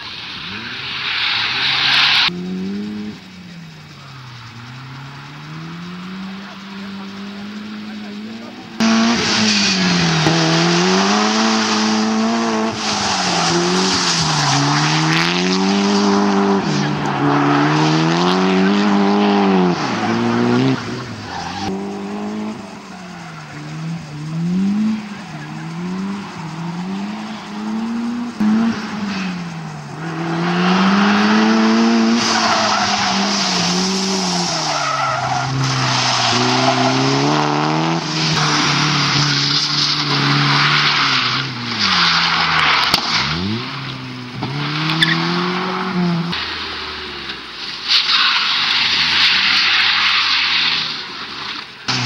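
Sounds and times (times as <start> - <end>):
car engine revving: 0.0 - 52.0
tyres squealing: 3.8 - 52.0.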